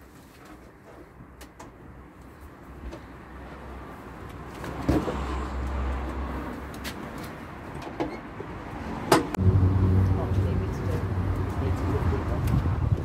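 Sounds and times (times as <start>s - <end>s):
passing vehicle rumble: 2.6s - 13.0s.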